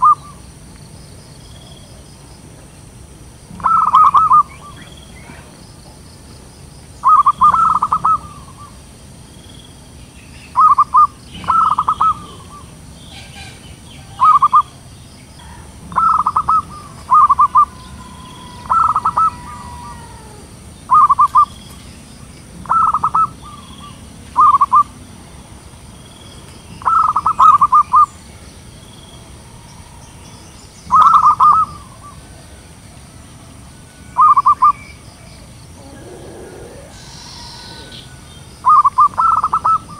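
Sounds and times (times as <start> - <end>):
dove cooing: 0.0 - 0.4, 3.5 - 5.5, 7.0 - 8.8, 10.6 - 14.7, 15.4 - 21.6, 22.6 - 24.9, 30.9 - 32.6, 35.6 - 39.9.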